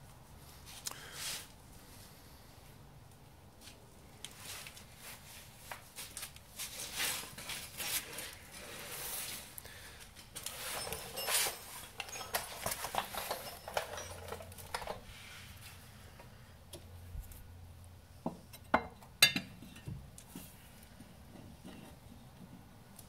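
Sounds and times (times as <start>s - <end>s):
rustling and scuffing handling noises: 3.5s - 15.8s.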